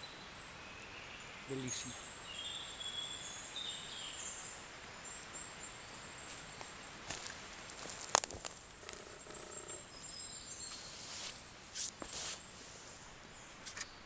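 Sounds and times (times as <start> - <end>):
footsteps on twigs and leaves: 5.4 - 13.0
twig snapping: 7.7 - 9.1.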